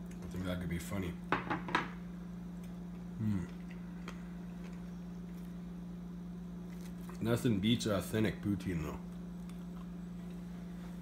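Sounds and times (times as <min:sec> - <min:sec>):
steady low hum: 0:00.0 - 0:11.0
person humming: 0:03.2 - 0:03.6.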